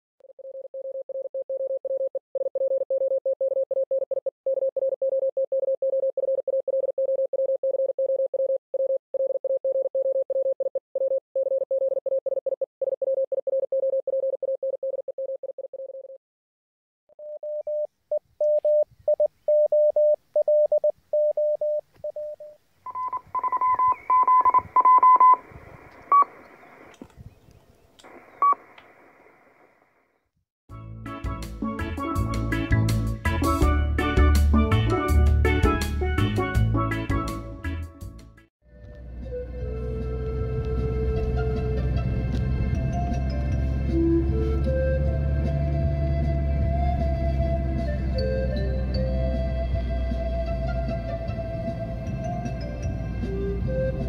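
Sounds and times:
morse code tone: 17.2s - 25.4s.

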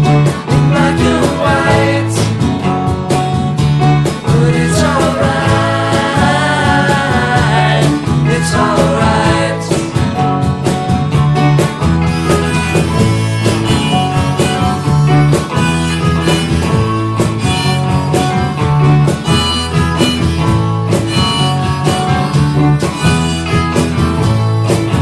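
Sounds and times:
guitar: 0.0s - 25.0s
steady drum beat: 0.0s - 25.0s
harmonica: 4.3s - 9.8s, 11.6s - 25.0s.

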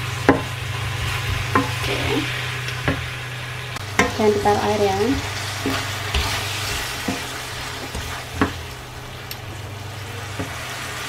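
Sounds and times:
vegetables sizzling in a pan: 0.0s - 11.0s
wooden spatula scraping a pan: 5.1s - 9.2s.

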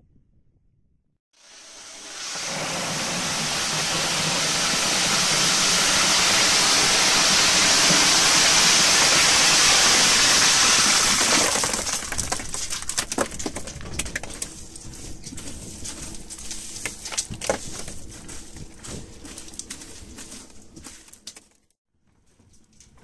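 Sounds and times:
crushed ice pouring: 2.0s - 21.4s
ice pieces clattering: 8.7s - 21.6s.

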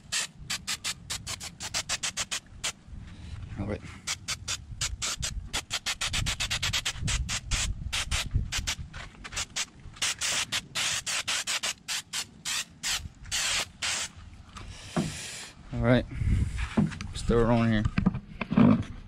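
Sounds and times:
aerosol spray hissing: 0.0s - 2.8s, 4.1s - 14.2s.

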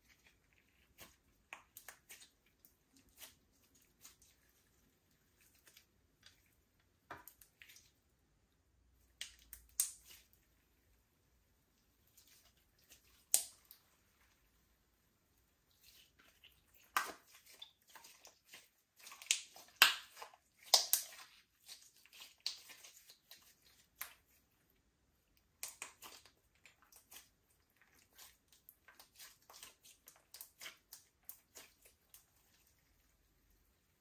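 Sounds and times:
slime squished by hand: 15.7s - 24.5s, 25.4s - 33.1s.

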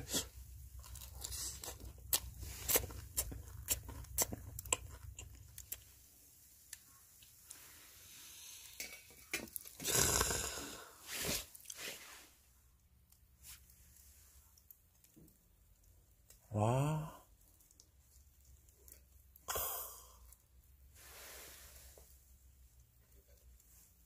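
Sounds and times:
person chewing crunchy food: 0.0s - 6.1s, 6.7s - 11.8s.

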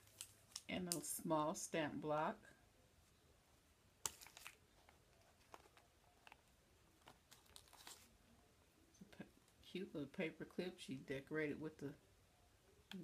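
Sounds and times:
plastic package crinkling: 0.0s - 1.0s, 4.0s - 8.1s.

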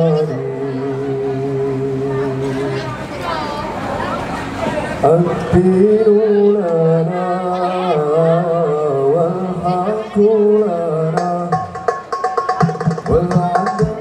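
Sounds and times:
hand percussion: 11.2s - 14.0s.

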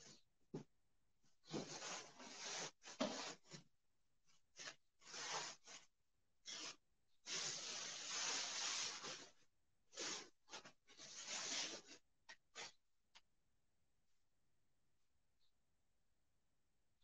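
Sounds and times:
rustling and rubbing: 1.4s - 3.6s, 4.6s - 12.8s.

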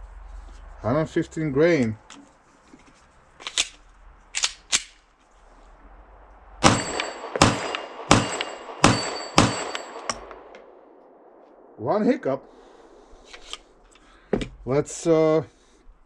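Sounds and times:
pistol handling clicks: 3.4s - 3.8s, 4.4s - 5.0s
steel targets ringing: 6.6s - 10.5s
pistol shots: 6.6s - 10.7s.

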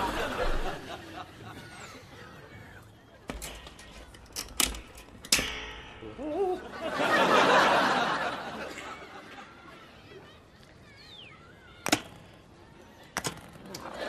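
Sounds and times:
audience laughing: 0.0s - 3.2s, 6.2s - 10.4s, 13.7s - 14.0s
faint bird chirps: 10.8s - 11.8s.

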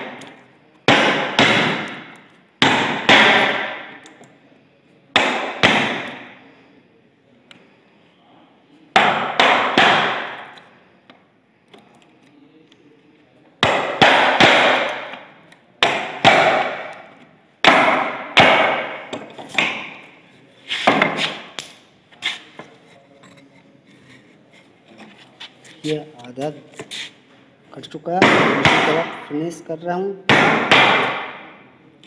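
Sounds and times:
mallet striking chisel: 0.9s - 4.0s, 13.6s - 15.2s, 17.6s - 20.0s, 30.3s - 31.4s.

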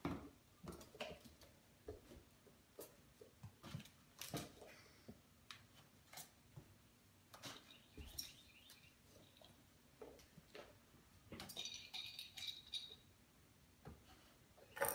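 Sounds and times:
kittens tapping and scuffling: 0.0s - 13.0s
toy clicking and rattling: 11.5s - 13.0s.

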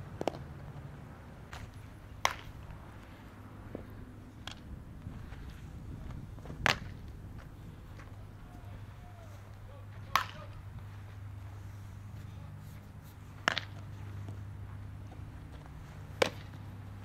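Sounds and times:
outdoor background noise: 0.0s - 17.0s
ball smacking into glove: 1.5s - 2.6s, 6.5s - 7.0s, 10.0s - 10.6s, 13.4s - 13.9s, 16.2s - 16.6s.

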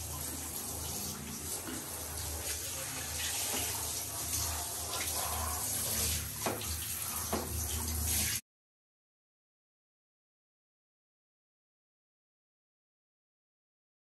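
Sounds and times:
shower water spraying: 0.0s - 8.4s.

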